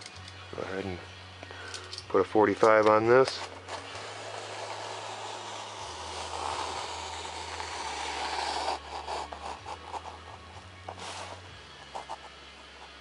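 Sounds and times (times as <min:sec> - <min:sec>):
blade cutting foam board: 0:03.4 - 0:12.3.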